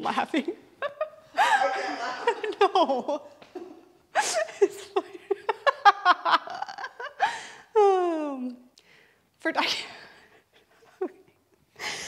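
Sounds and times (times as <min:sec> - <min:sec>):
woman laughing: 0:00.8 - 0:08.4, 0:10.7 - 0:12.0.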